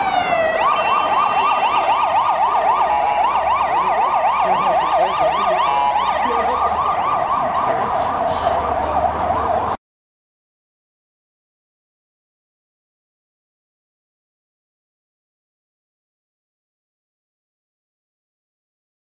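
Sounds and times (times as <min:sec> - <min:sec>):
emergency siren yelping: 0:00.0 - 0:09.8.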